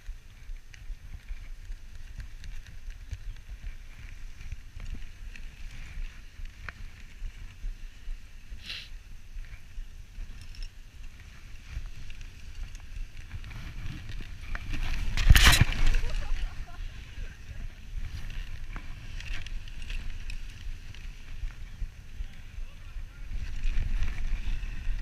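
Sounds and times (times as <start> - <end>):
wind on microphone: 0.0 - 25.0
sled runners hissing on snow: 3.2 - 10.2.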